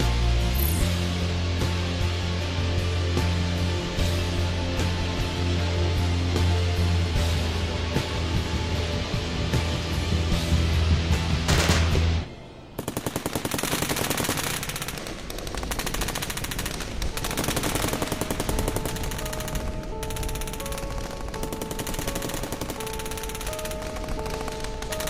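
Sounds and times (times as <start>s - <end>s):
film score held notes: 0.0s - 25.0s
rapid automatic gunfire: 11.5s - 12.1s, 12.8s - 25.0s.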